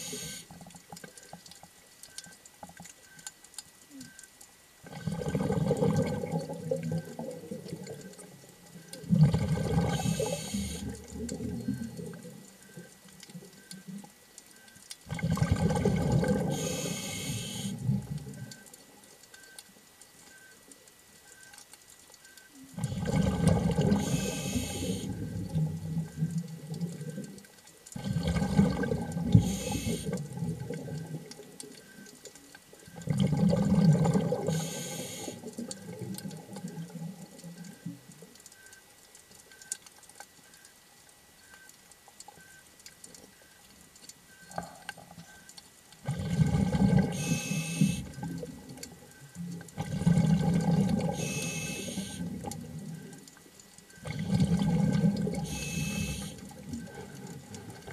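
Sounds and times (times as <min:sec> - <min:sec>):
regulator inhale hiss: 0:00.0 - 0:00.5, 0:09.9 - 0:11.0, 0:16.5 - 0:17.9, 0:24.0 - 0:25.3, 0:29.3 - 0:30.2, 0:34.5 - 0:35.5, 0:47.1 - 0:48.1, 0:51.2 - 0:52.3, 0:55.4 - 0:56.4
exhaled bubbles rushing: 0:04.8 - 0:08.0, 0:09.0 - 0:10.2, 0:15.1 - 0:16.5, 0:22.8 - 0:27.0, 0:28.0 - 0:31.2, 0:33.0 - 0:34.6, 0:46.0 - 0:47.4, 0:49.7 - 0:51.3, 0:54.0 - 0:55.4.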